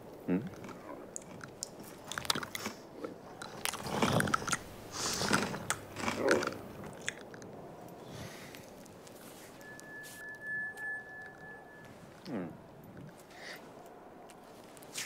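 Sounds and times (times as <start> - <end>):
cartoon chewing and crunching: 0.3 - 7.6.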